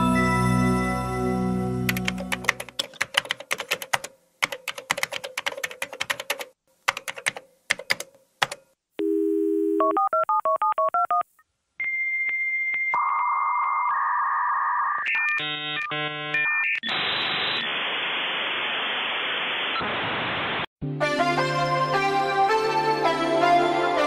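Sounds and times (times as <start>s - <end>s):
dial tone: 9.0s - 11.2s.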